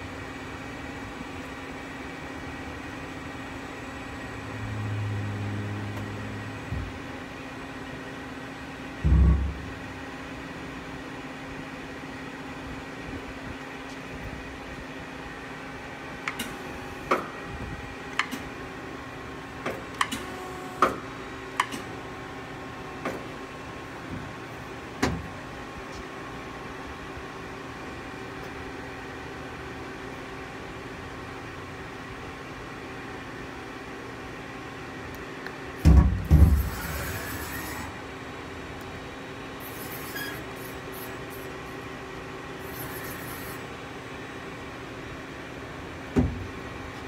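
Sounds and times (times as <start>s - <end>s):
machine hum with steady tones: 0.0s - 47.0s
heavy thump: 9.0s - 9.7s
mechanical clicks and clunks: 19.6s - 21.0s.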